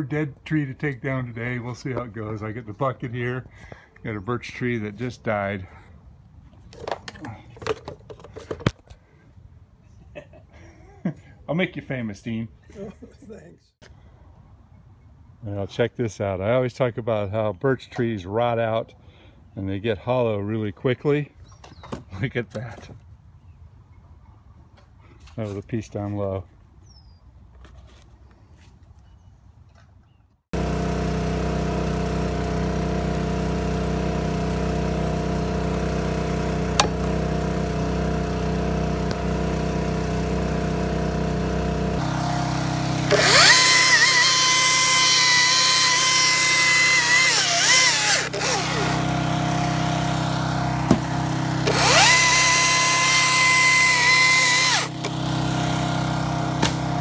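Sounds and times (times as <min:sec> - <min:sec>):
chainsaw whine: 0:30.6 - 0:57.0
truck engine drone: 0:30.6 - 0:57.0.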